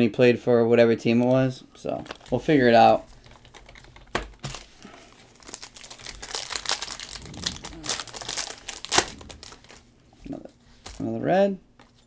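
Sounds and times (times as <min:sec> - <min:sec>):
plastic wrapper crinkling: 0:01.9 - 0:09.9.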